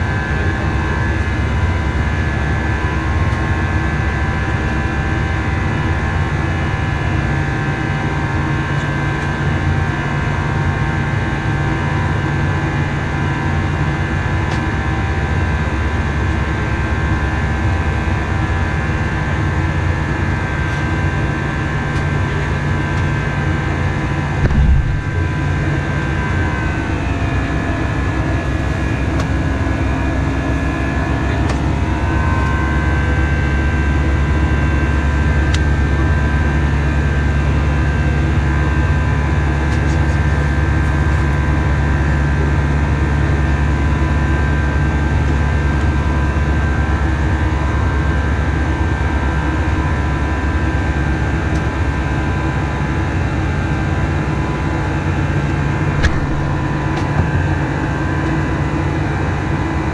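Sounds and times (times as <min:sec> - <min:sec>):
engine and airflow drone: 0:00.0 - 0:59.9
brief low thump: 0:24.4 - 0:25.3, 0:56.0 - 0:57.4.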